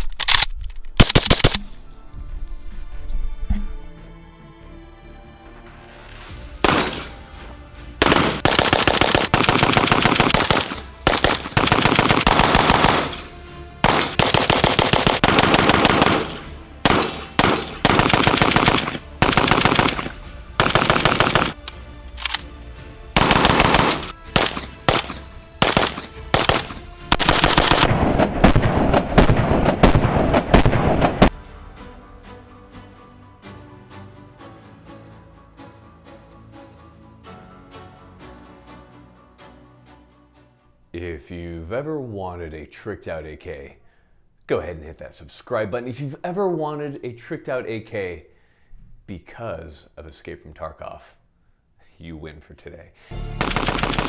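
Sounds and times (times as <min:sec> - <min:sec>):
rapid gunfire: 0:08.0 - 0:13.2, 0:13.8 - 0:21.6, 0:23.2 - 0:31.3, 0:53.2 - 0:54.0.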